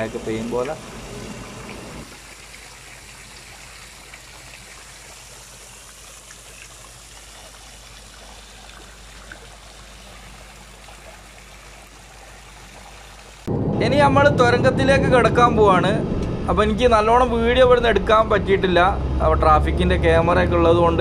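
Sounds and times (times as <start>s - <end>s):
faint low pump hum: 0.0s - 13.5s
waterfall splashing into pool: 0.0s - 13.5s.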